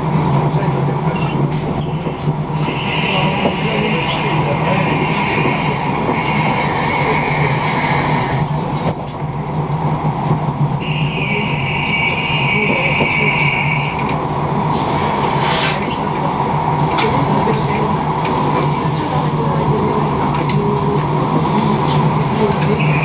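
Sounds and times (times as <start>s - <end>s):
train rolling rumble: 0.0s - 23.0s.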